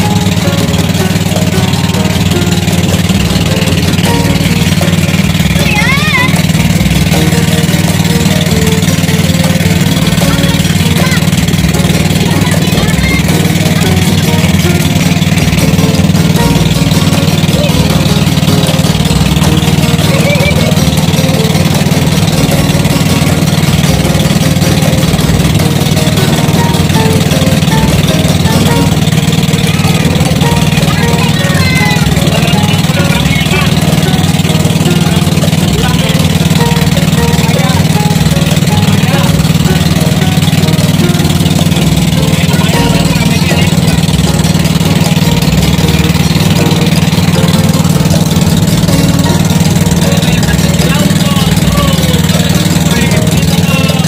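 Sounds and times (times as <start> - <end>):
boat engine droning: 0.0 - 54.0.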